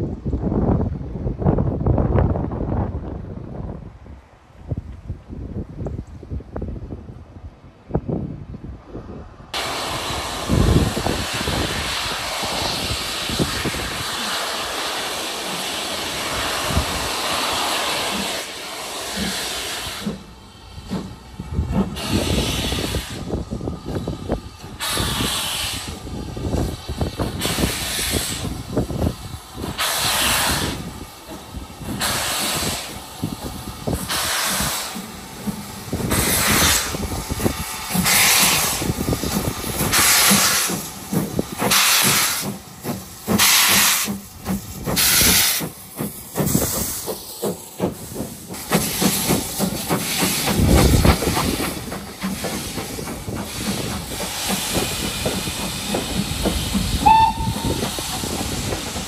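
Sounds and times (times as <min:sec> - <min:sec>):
steam locomotive hissing: 0:09.5 - 0:59.0
steam locomotive chuffing: 0:09.6 - 0:59.0.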